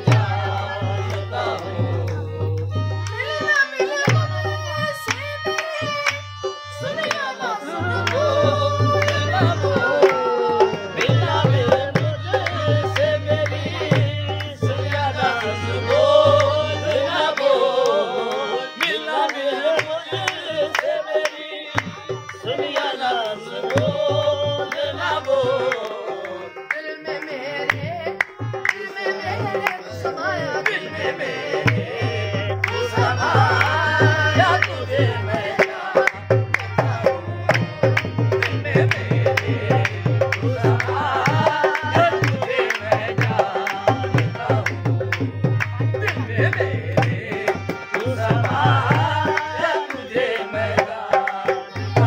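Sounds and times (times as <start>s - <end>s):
harmonium chords: 0.0s - 52.0s
man singing: 0.0s - 52.0s
hand claps: 5.0s - 7.3s, 9.0s - 10.2s, 24.7s - 28.9s, 35.6s - 52.0s.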